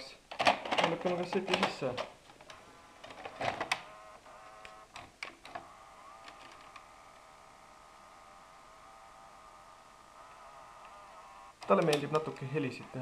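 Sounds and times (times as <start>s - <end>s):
cassette mechanism clicks and clunks: 0.3s - 3.9s, 11.6s - 12.2s
whirring motor hum: 2.4s - 13.0s.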